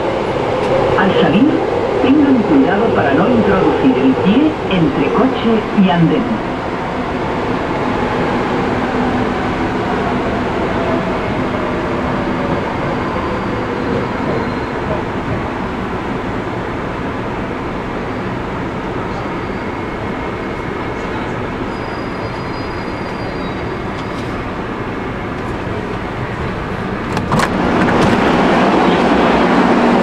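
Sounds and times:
metro train running: 0.0s - 30.0s
faint train squeals: 13.1s - 15.0s, 19.0s - 24.4s.

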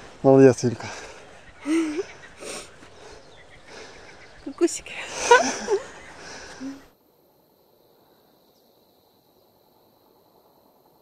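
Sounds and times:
outdoor background hiss: 0.0s - 11.0s
woman laughing: 1.6s - 2.6s, 5.0s - 6.8s.

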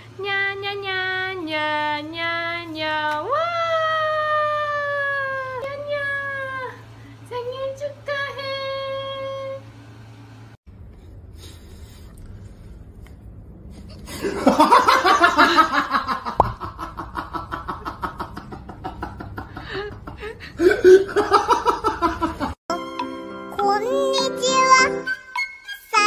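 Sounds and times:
person laughing hard: 14.1s - 22.6s.

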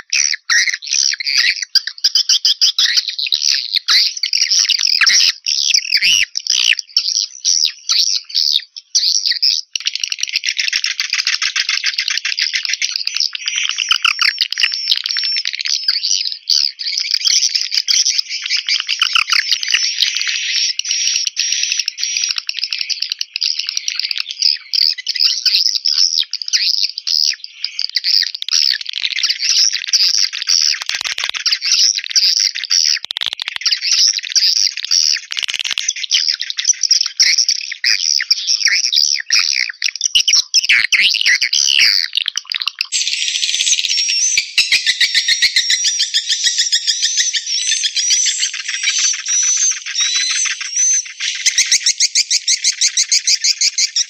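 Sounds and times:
swiftlets chirping and twittering: 10.0s - 54.0s
rapid high chirps: 42.9s - 54.0s.

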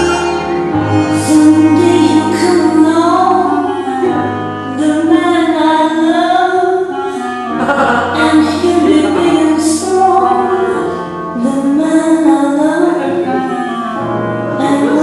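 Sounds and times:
woman singing held notes: 8.1s - 10.0s.

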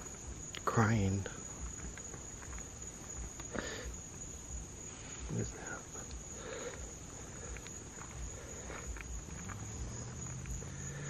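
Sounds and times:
night insects trilling: 0.0s - 11.0s
soft footsteps: 1.4s - 5.3s, 6.0s - 11.0s.

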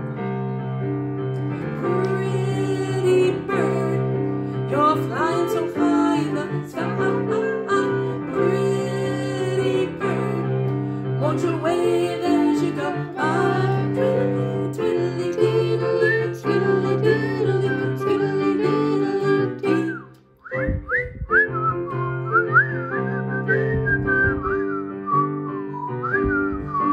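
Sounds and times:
women singing: 1.8s - 20.1s.

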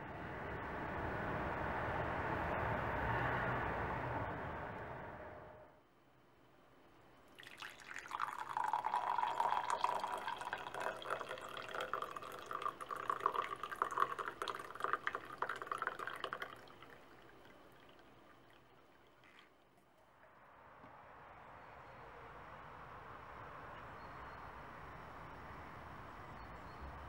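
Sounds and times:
tea pouring into a ceramic mug: 7.3s - 19.6s.

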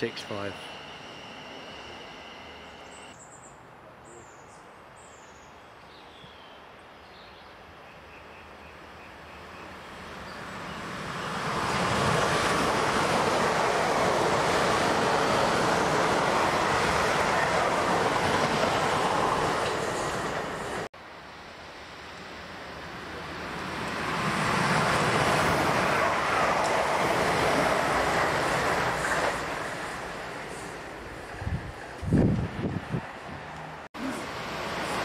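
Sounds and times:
electric train passing: 0.0s - 3.2s, 8.5s - 35.0s.

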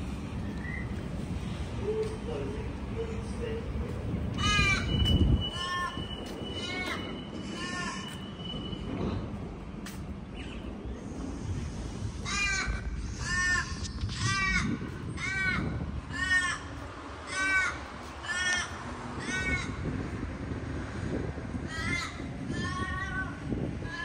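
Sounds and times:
crow cawing: 4.4s - 4.9s, 15.2s - 19.8s, 21.7s - 22.2s.

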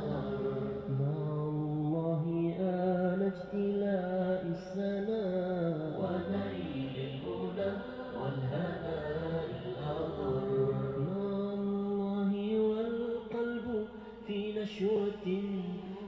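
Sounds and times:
person singing long held notes: 0.0s - 3.6s.

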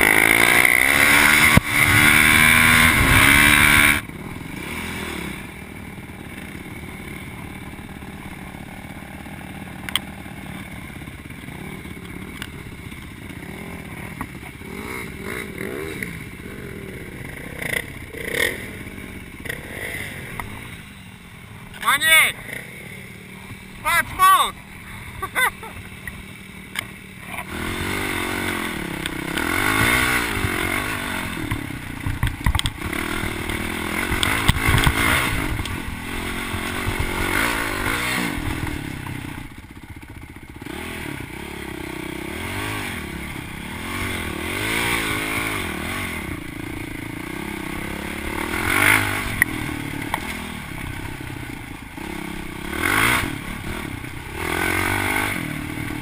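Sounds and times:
dirt bike engine revving: 0.0s - 56.0s
bike knocking and clattering: 31.5s - 32.9s.

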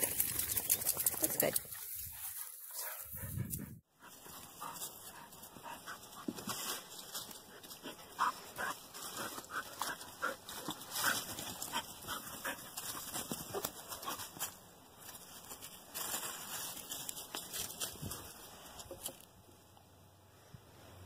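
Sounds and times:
dry leaves rustling underfoot: 4.1s - 19.2s.

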